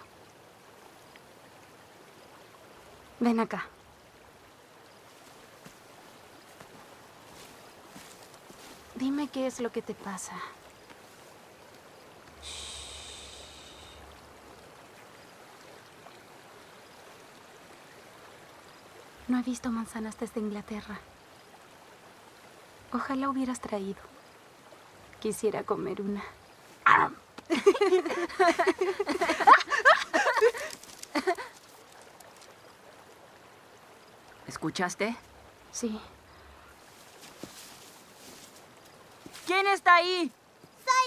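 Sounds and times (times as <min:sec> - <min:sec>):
stream flowing: 0:00.0 - 0:41.0
long breathy exhale: 0:12.4 - 0:14.1
person giggling: 0:27.5 - 0:31.5.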